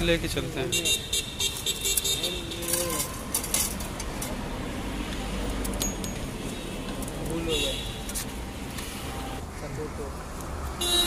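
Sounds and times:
low traffic rumble: 0.0 - 11.0
metal scoop clinking on steel tubs: 2.0 - 4.4.

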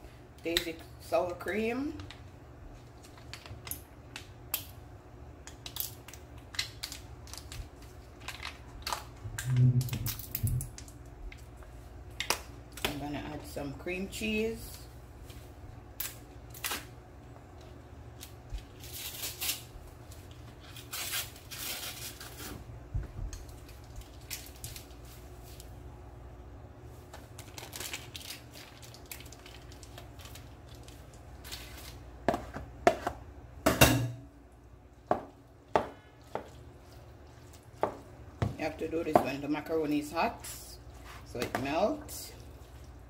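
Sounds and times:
packaging crinkling and rustling: 17.5 - 22.6, 23.3 - 25.7, 27.0 - 32.1.

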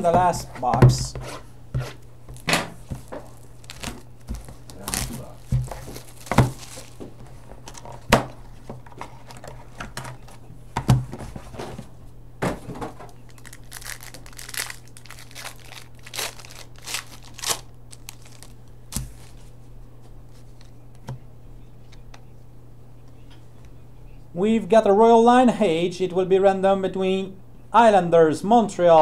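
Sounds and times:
low electrical hum: 0.0 - 29.0
plastic wrapping crinkling and tearing: 2.4 - 7.8, 13.3 - 19.5.

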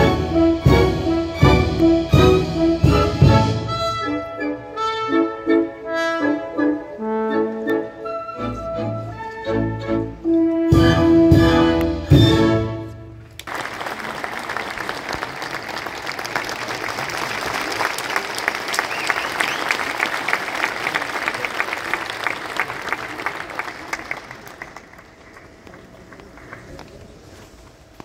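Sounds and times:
audience applauding: 13.4 - 27.3.

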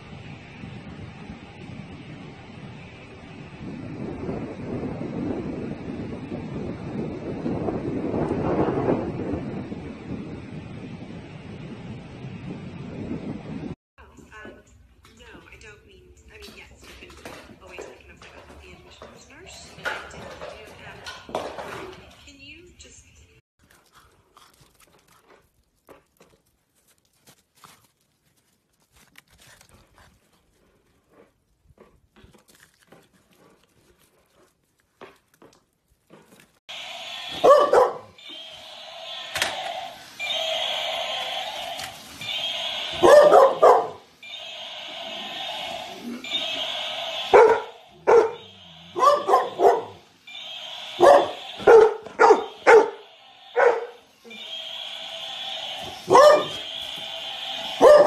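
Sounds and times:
snow crunching under paws: 26.4 - 31.0
toy steady noise: 36.7 - 58.0
large dog barking: 37.3 - 38.2, 42.9 - 44.0, 47.3 - 50.0, 51.0 - 54.0, 56.1 - 56.7, 57.8 - 58.0.

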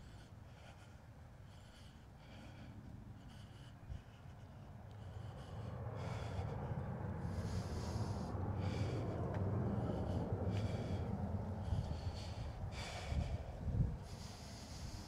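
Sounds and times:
person breathing hard: 0.0 - 15.0
low rumble: 4.0 - 15.0.

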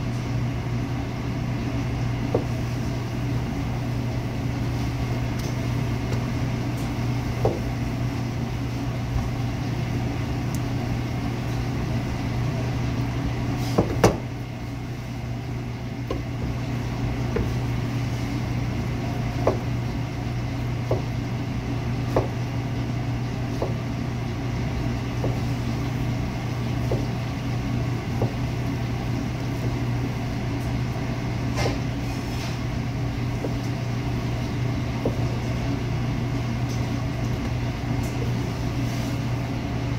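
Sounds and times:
low hum of kitchen equipment: 0.0 - 39.9
knife knocking on cutting board: 26.8 - 27.1.

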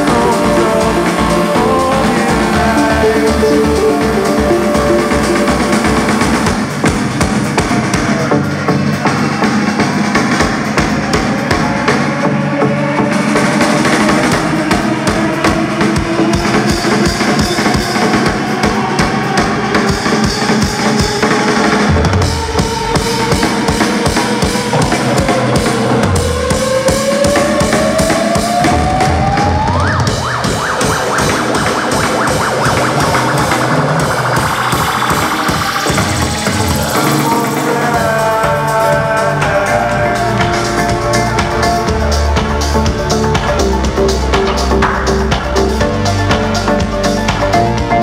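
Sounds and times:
synth tone sweeping up: 0.0 - 7.2, 21.8 - 48.0
fast drum roll: 0.0 - 12.2, 13.0 - 48.0
live electronic dance music: 0.0 - 48.0.

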